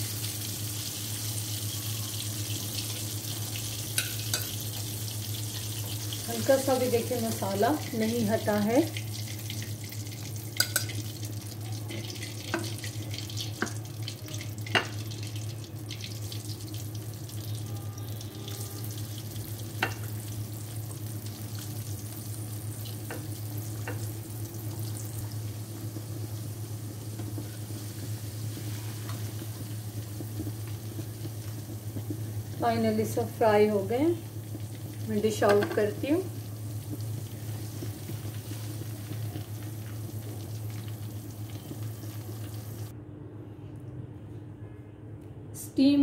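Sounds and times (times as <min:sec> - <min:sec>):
chicken sizzling in hot oil: 0:00.0 - 0:42.9.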